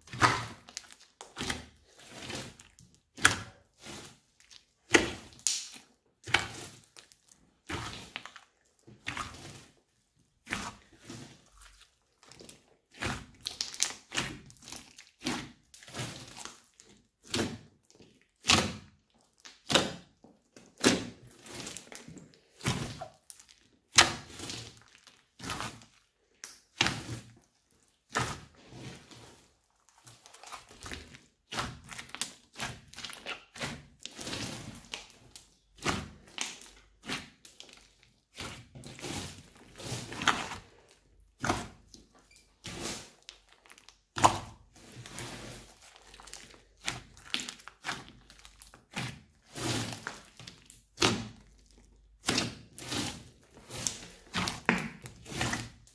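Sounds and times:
sticky slime squishes: 0:00.0 - 0:55.9.

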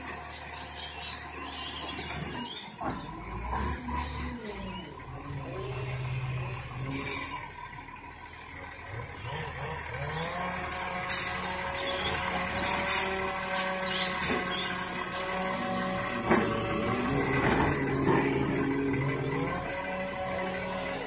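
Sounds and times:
truck engine running: 0:00.0 - 0:21.0
high-pitched whine: 0:09.2 - 0:16.4.

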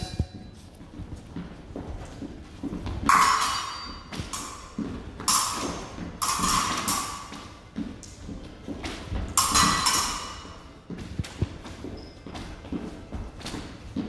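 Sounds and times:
footsteps on wooden floor: 0:00.0 - 0:03.1, 0:03.9 - 0:06.2, 0:07.3 - 0:09.4, 0:10.6 - 0:14.0
fencing blades clashing: 0:02.7 - 0:11.6.

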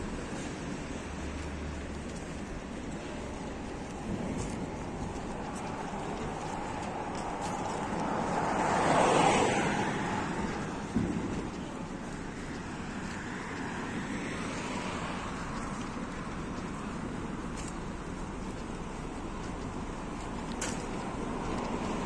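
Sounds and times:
car driving past: 0:06.4 - 0:11.6.

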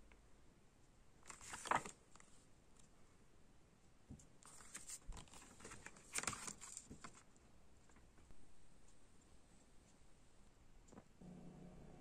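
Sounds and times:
paper booklet rustling: 0:01.2 - 0:02.4, 0:04.4 - 0:07.3.

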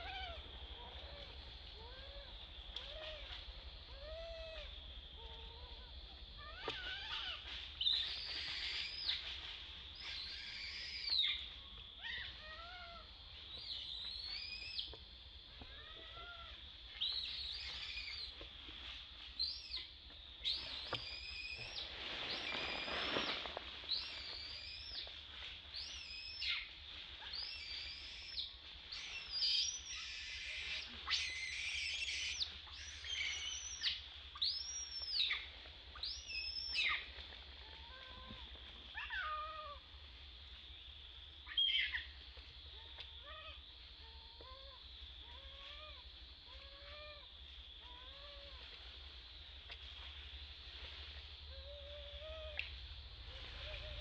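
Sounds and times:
rustling: 0:20.4 - 0:34.5
baby monkey crying: 0:29.4 - 0:33.8.

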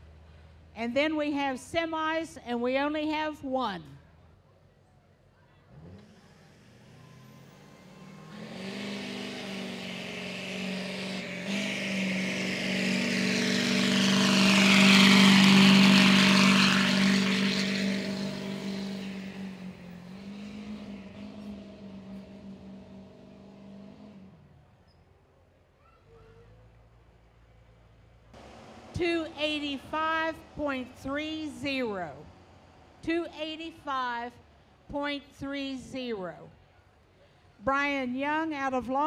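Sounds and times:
truck engine at full throttle: 0:05.7 - 0:24.5, 0:28.4 - 0:33.0.

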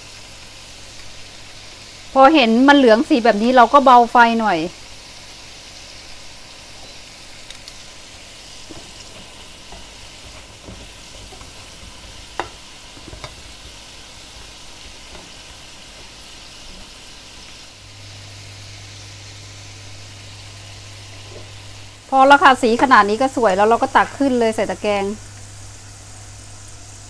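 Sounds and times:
potato sticks sizzling in lard: 0:00.0 - 0:27.0
tongs knocking on pan: 0:08.6 - 0:13.8, 0:14.9 - 0:16.1.

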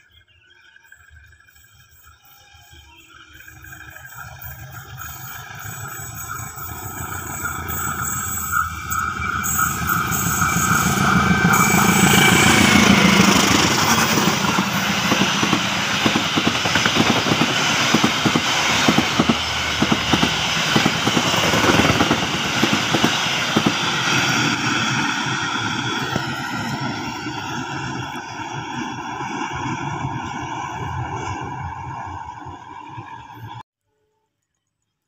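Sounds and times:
diesel locomotive engine: 0:00.0 - 0:33.7
train wheels clattering on track: 0:03.4 - 0:30.4.

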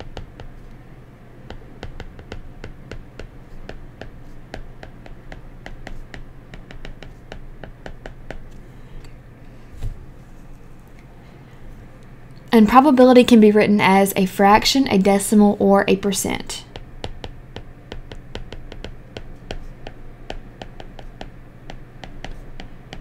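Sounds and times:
low steady hum: 0:00.0 - 0:23.0
stylus tapping on glass screen: 0:01.5 - 0:08.4, 0:16.7 - 0:23.0.

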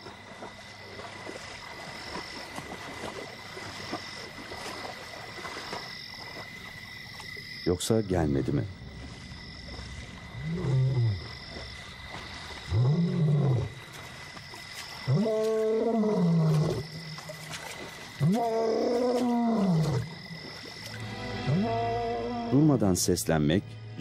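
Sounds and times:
lion roaring: 0:10.4 - 0:11.3, 0:12.7 - 0:13.8, 0:15.1 - 0:16.9, 0:18.2 - 0:20.2.

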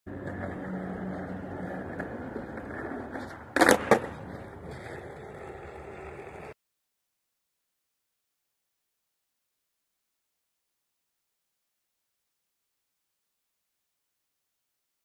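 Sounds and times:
skateboard wheels rolling on concrete: 0:00.1 - 0:06.6
skateboard landing clack: 0:01.9 - 0:04.9.

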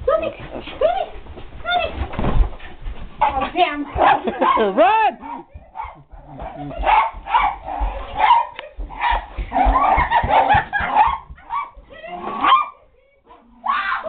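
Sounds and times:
running footsteps: 0:00.0 - 0:12.7
dog barking excitedly: 0:03.2 - 0:12.8.

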